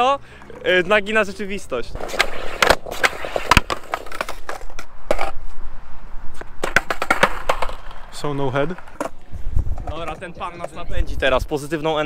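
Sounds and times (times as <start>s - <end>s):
skateboard wheels rolling: 0.4s - 5.6s, 6.3s - 11.0s
skateboard clattering on bricks: 2.0s - 5.4s, 6.6s - 8.0s
skateboard tail pop: 2.0s - 5.4s, 6.4s - 7.9s.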